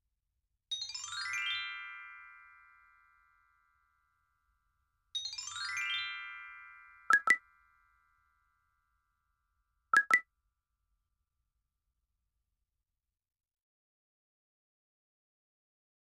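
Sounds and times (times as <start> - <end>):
short electronic beeps: 7.1 - 7.4, 10.0 - 10.2.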